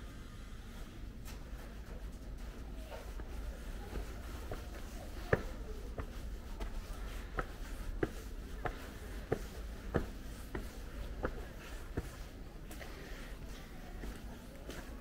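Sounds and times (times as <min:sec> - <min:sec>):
footsteps clicking: 0:03.9 - 0:15.0.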